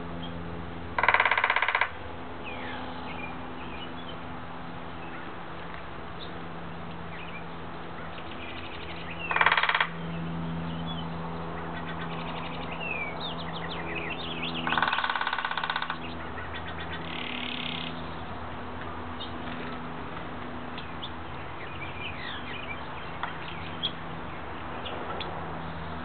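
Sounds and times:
woodpecker drumming on wood: 0:00.9 - 0:02.1, 0:09.2 - 0:10.0, 0:14.6 - 0:16.2, 0:23.2 - 0:23.5
small birds chirping: 0:02.4 - 0:04.3, 0:06.2 - 0:18.4, 0:20.6 - 0:26.0.

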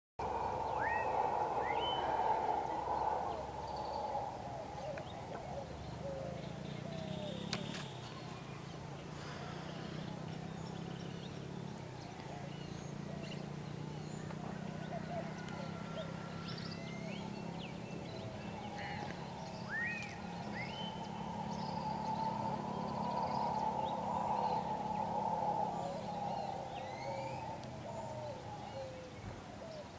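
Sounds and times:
howler monkeys roaring: 0:00.2 - 0:07.4, 0:14.4 - 0:29.9
upward-sweeping bird calls: 0:00.2 - 0:07.9, 0:15.2 - 0:29.1.

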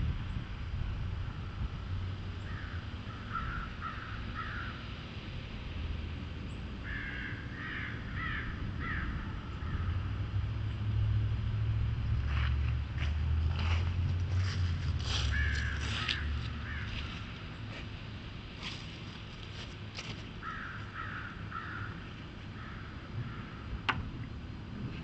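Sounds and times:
steady low rumble: 0:00.0 - 0:25.0
crow cawing: 0:02.5 - 0:04.8, 0:06.8 - 0:09.9, 0:15.2 - 0:17.2, 0:20.4 - 0:22.0, 0:22.6 - 0:23.6.

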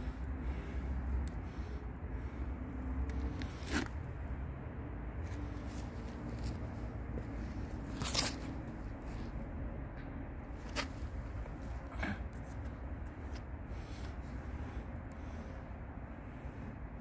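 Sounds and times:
steady low rumble: 0:00.0 - 0:17.0
sharp scrapes: 0:03.1 - 0:04.1.

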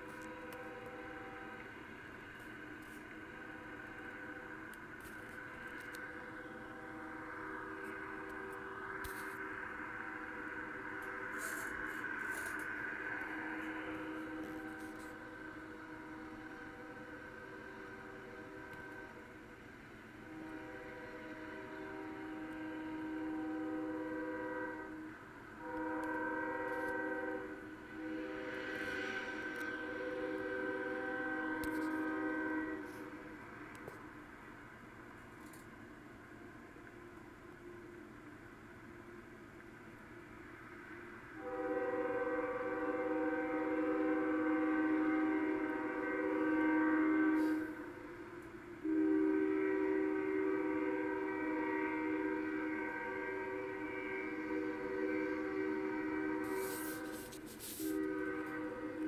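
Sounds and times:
locomotive air horn blasts: 0:00.0 - 0:19.4, 0:20.2 - 0:34.0, 0:41.4 - 0:59.0.

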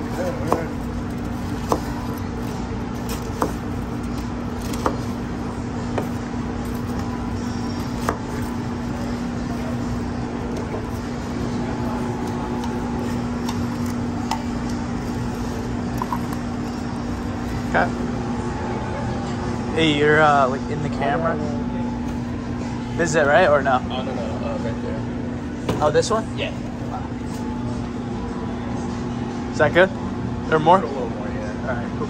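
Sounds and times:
knife chopping on cutting board: 0:00.3 - 0:05.2, 0:05.9 - 0:07.0, 0:07.8 - 0:08.5.

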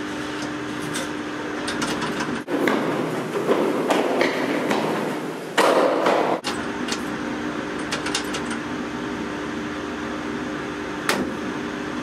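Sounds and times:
lift mechanical hum: 0:00.0 - 0:12.0
hurried footsteps in stairwell: 0:02.5 - 0:06.4.

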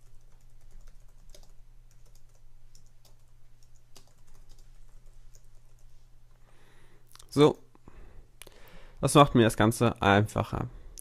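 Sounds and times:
typing on a computer keyboard: 0:00.0 - 0:05.9.

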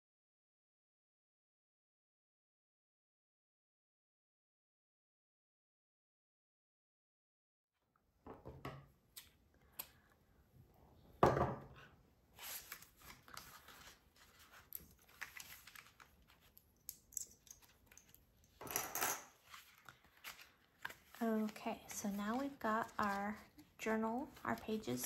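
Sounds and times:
pages riffling: 0:12.4 - 0:16.6, 0:19.4 - 0:23.6
paper rustling: 0:12.4 - 0:16.8, 0:19.4 - 0:25.0.

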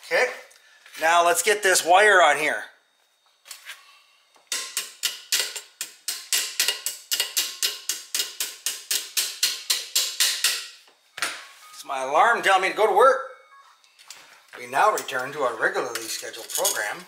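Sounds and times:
smartphone alarm chime: 0:11.1 - 0:13.8.

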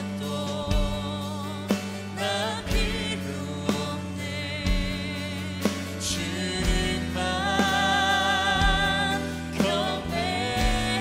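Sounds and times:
band with bass and drums: 0:00.0 - 0:11.0
woman singing into microphone: 0:00.0 - 0:11.0.

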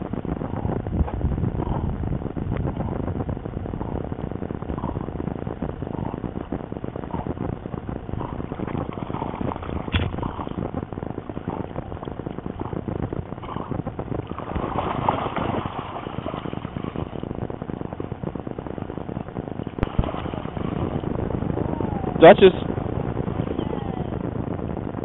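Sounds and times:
water sloshing and splashing: 0:07.3 - 0:17.4, 0:19.6 - 0:21.1.

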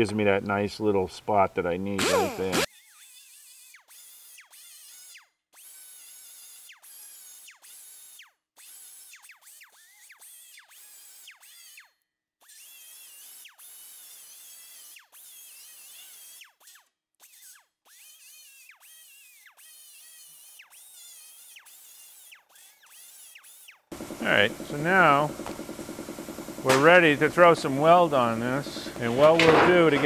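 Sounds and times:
air die grinder whining: 0:02.0 - 0:02.7, 0:23.9 - 0:30.0.

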